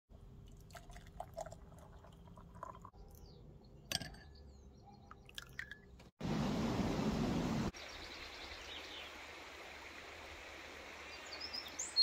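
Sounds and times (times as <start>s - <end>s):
syrup trickling into a jar: 0.3s - 2.9s.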